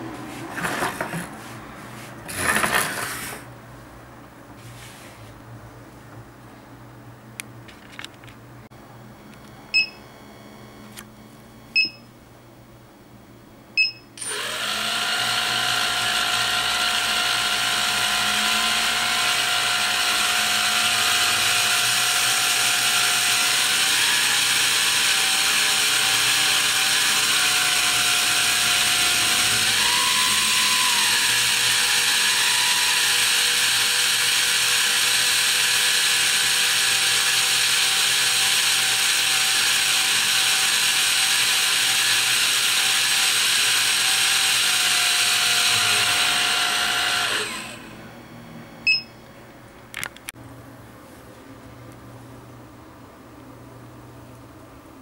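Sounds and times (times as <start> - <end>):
short electronic beeps: 9.7 - 10.1, 11.8 - 12.1, 13.8 - 14.2, 48.9 - 49.2
drone motor whining: 14.2 - 48.2.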